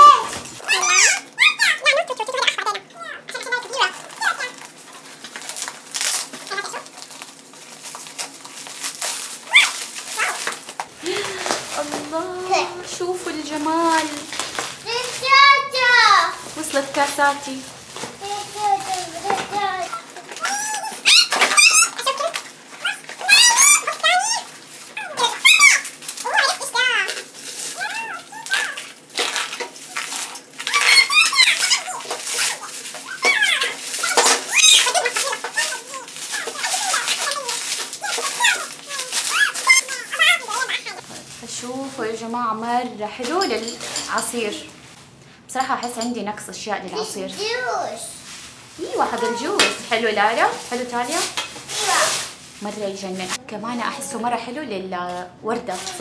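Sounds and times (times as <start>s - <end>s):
high-pitched squeaks: 0.0s - 1.8s, 29.9s - 41.0s
bubble wrap crinkling: 0.0s - 45.2s, 46.8s - 56.0s
packing tape peeling: 3.6s - 12.6s, 13.3s - 17.0s, 17.7s - 41.4s, 50.4s - 52.7s.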